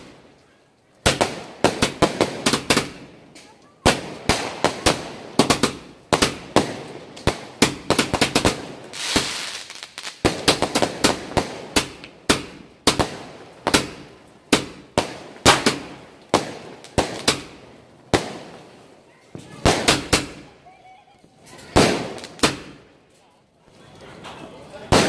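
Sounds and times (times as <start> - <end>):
fireworks bangs: 0.0 - 0.4, 1.0 - 23.0, 23.7 - 25.0
fireworks hiss: 3.9 - 20.5.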